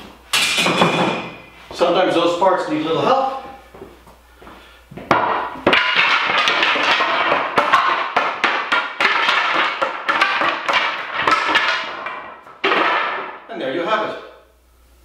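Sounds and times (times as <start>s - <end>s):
wooden staves clattering on concrete: 5.0s - 13.5s.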